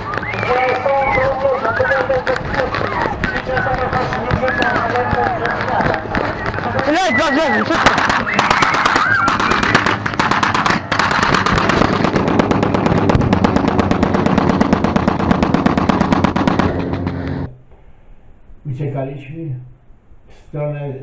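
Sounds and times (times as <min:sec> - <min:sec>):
rapid machine-gun fire: 0:07.6 - 0:17.2.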